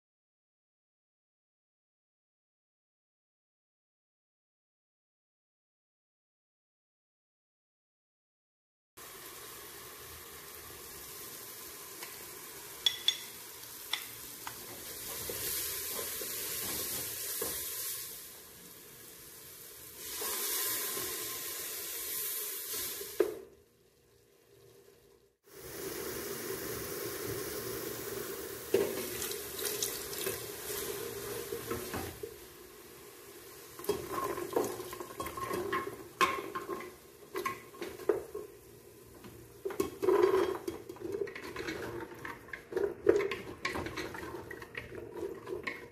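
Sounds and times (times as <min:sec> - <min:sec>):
masala sizzling in a pot: 0:09.0 - 0:45.9
wooden spoon scraping pot: 0:39.7 - 0:45.9.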